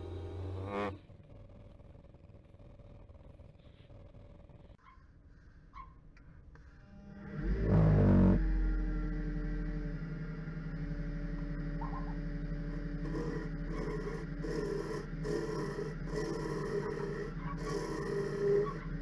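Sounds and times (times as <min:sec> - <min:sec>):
wood lathe motor humming: 0:00.0 - 0:00.8, 0:07.2 - 0:19.0
turning tool scraping wood: 0:12.8 - 0:19.0.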